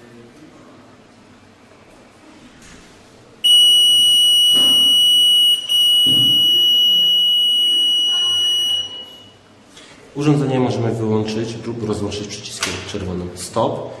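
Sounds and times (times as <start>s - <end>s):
high-pitched electronic buzzer beep: 3.4s - 9.4s.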